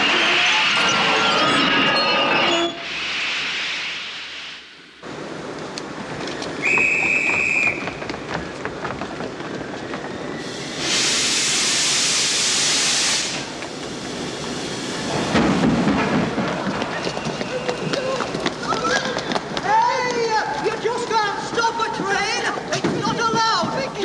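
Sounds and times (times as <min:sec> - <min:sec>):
locomotive hissing steam: 0:02.8 - 0:04.7, 0:10.1 - 0:15.9
rush of escaping steam: 0:02.8 - 0:04.8, 0:10.2 - 0:16.1
high steam whistle: 0:06.6 - 0:07.9, 0:10.2 - 0:13.5.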